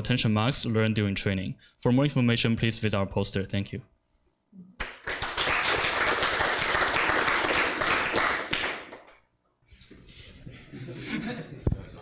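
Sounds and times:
audience applauding: 4.8 - 9.2.

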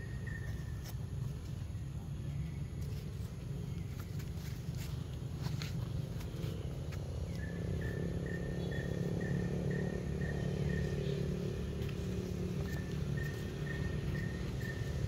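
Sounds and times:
insect chirping: 0.0 - 15.0
low steady rumble: 0.0 - 15.0.

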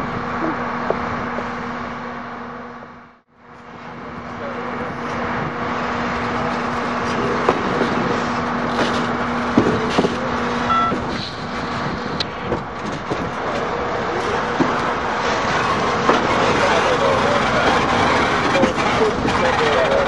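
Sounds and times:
train wheels clunking over rail joints: 6.2 - 20.0.

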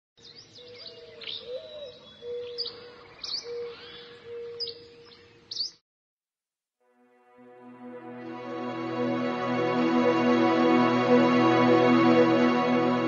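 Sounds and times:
birds chirping: 0.2 - 5.8
steady low tone: 7.2 - 13.0.

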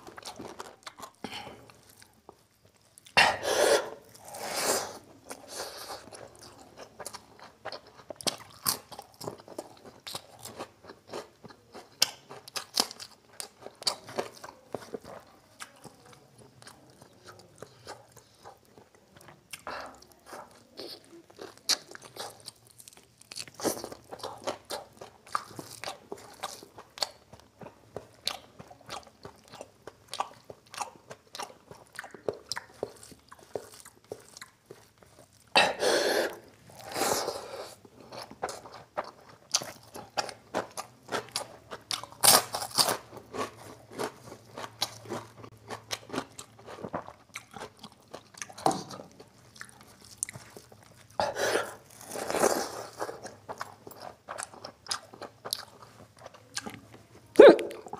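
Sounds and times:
chewing with wet mouth clicks: 6.0 - 35.5, 38.0 - 51.2, 51.9 - 57.9
crunchy bites: 38.1 - 55.9.

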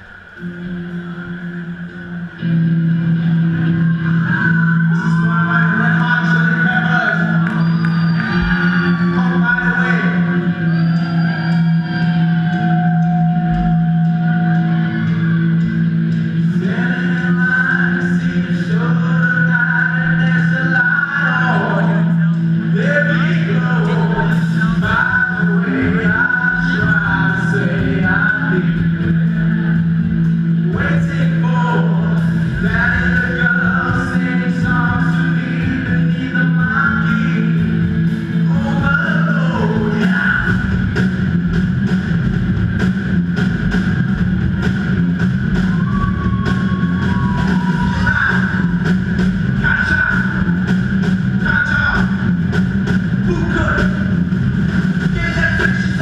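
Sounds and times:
live band playing: 0.0 - 56.0
sung vocals: 16.3 - 30.0, 30.6 - 40.9, 45.7 - 52.4
drum kit beating: 22.4 - 56.0.

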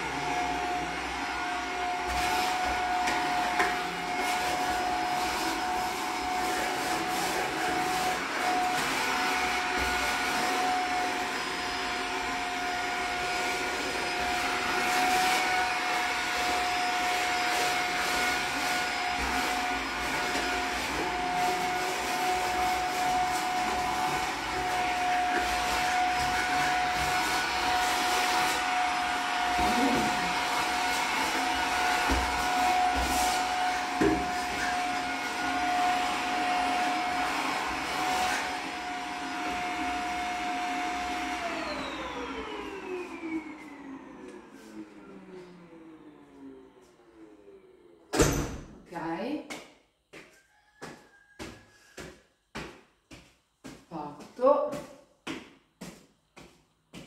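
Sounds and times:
vacuum cleaner running: 0.0 - 49.4, 53.6 - 54.9.

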